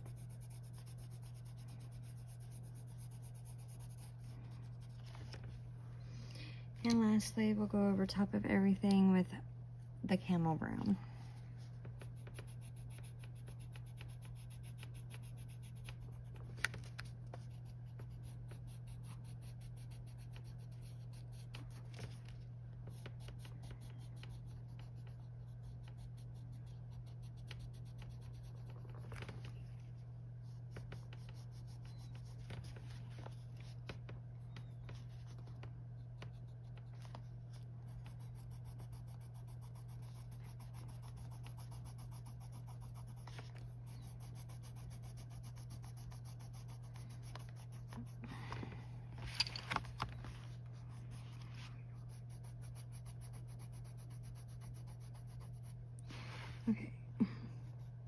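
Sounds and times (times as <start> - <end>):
colored pencil scratching on paper: 0.0 - 5.4, 12.0 - 16.4, 17.0 - 22.3, 22.9 - 29.6, 30.4 - 34.0, 34.6 - 48.2, 50.8 - 55.8
steady low hum: 0.0 - 58.0.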